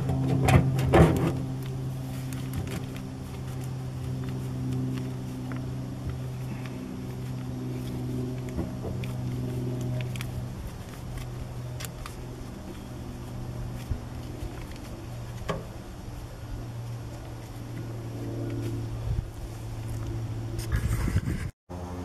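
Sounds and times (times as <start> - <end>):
low motor hum: 0.0 - 22.0.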